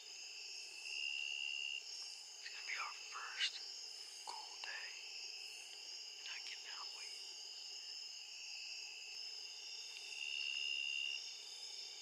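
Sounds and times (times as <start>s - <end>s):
crickets chirping: 0.0s - 12.0s
soft whispering: 2.4s - 5.1s, 6.2s - 7.2s.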